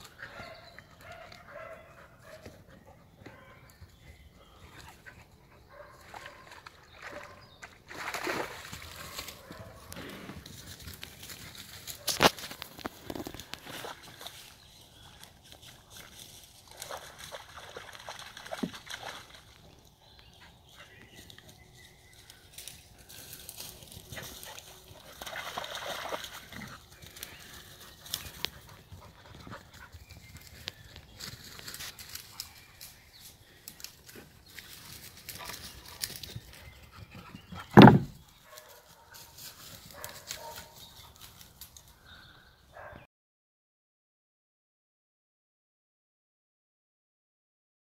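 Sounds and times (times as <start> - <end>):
dogs splashing in water: 6.0 - 9.4, 16.7 - 19.6, 24.2 - 27.2.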